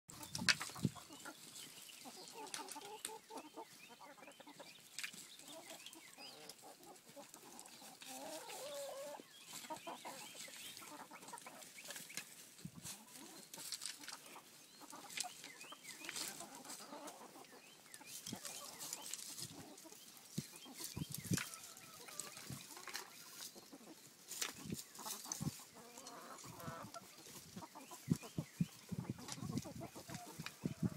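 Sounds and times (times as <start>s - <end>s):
hens clucking and squawking: 0.1s - 30.9s.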